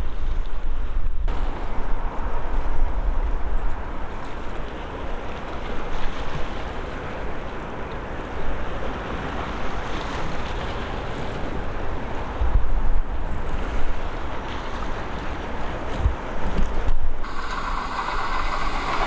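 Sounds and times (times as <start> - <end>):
wind buffeting microphone: 0.0 - 19.0
steady rushing noise: 16.9 - 19.0.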